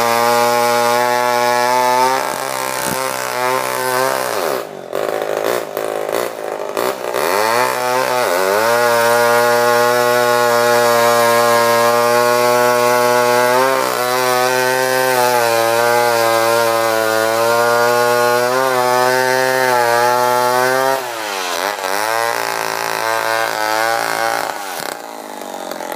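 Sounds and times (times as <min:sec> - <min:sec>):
chainsaw cutting log: 0:00.0 - 0:25.9.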